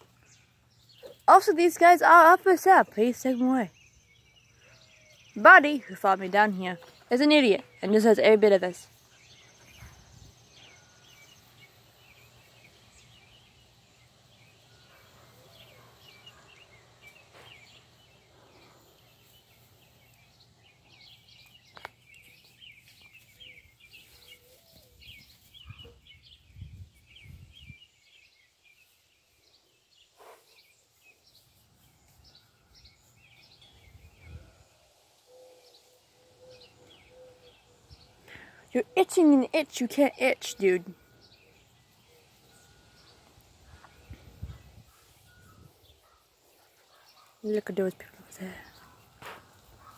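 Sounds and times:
small birds chirping: 0.0 - 49.9.

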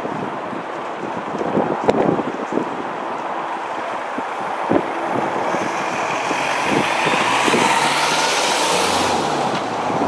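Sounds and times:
van driving past: 4.9 - 10.0.

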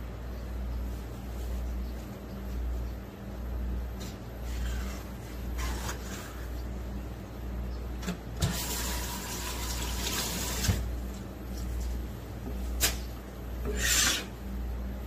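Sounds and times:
steady low hum: 0.0 - 15.0
water running: 8.4 - 10.9.

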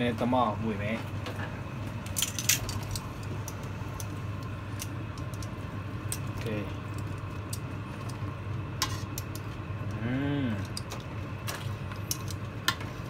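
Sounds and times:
steady low hum: 0.0 - 13.0
person humming briefly: 9.9 - 10.7.

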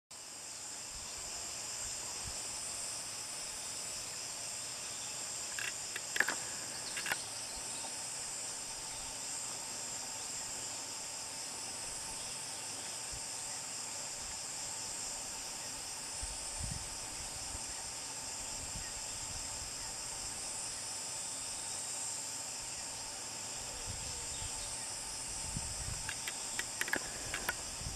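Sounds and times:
insect chorus: 0.1 - 27.9
sharp clicks: 5.6 - 7.2, 26.0 - 27.6.

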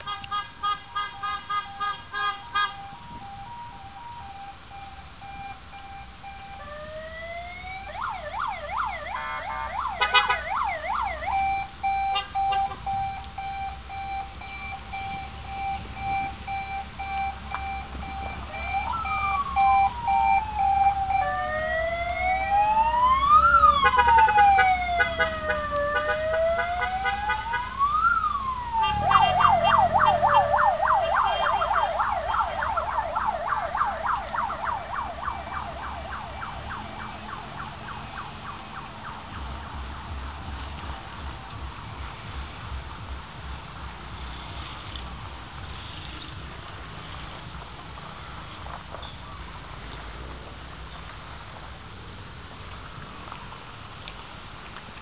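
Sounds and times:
electronic sirens wailing and yelping: 2.5 - 39.3.

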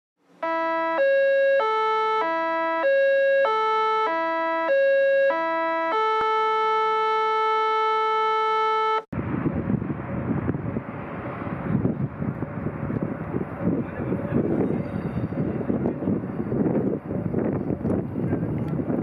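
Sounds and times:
electronic jingle: 0.4 - 9.1
wind rush on microphone: 9.1 - 19.0.

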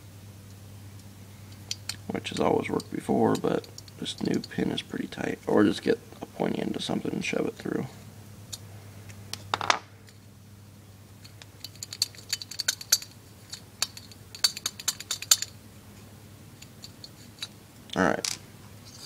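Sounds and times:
small metal clicks and clinks: 1.5 - 4.8, 11.2 - 15.6.

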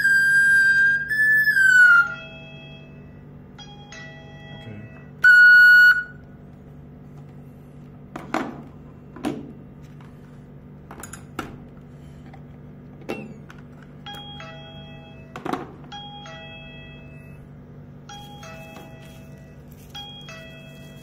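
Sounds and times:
two-note intercom chime: 1.0 - 6.2
loud steady electronic beep: 4.4 - 6.2.

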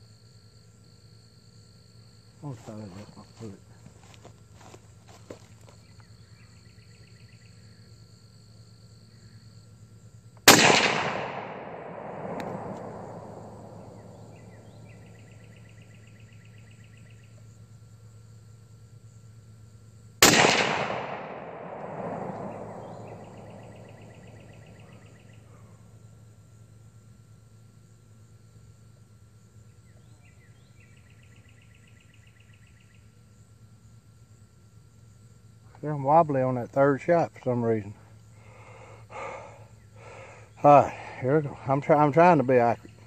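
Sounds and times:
rifle shots with rolling echo: 10.4 - 15.0, 20.2 - 25.3.

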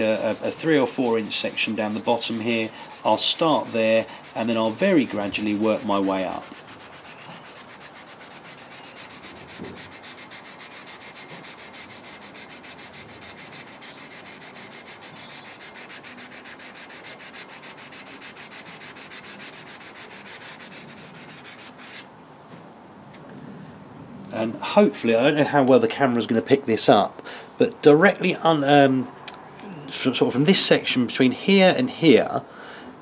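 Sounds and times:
sandpaper rubbing steel blade: 0.0 - 22.1.

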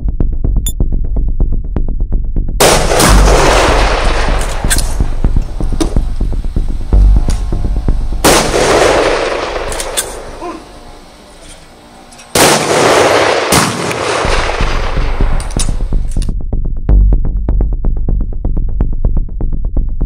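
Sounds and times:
background music: 0.0 - 20.0
pistol shots with echo: 8.2 - 10.4, 12.3 - 15.8.

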